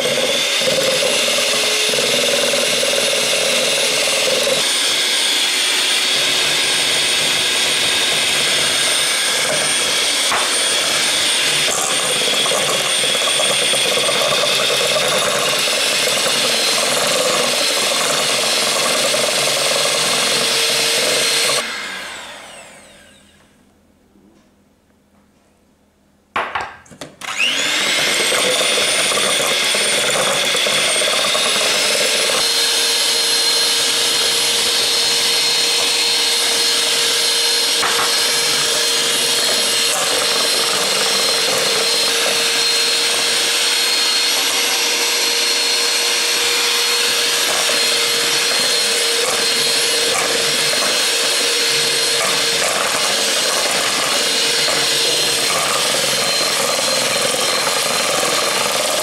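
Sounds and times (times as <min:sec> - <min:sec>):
electric hand mixer whine: 0:00.0 - 0:23.5, 0:27.2 - 0:59.0.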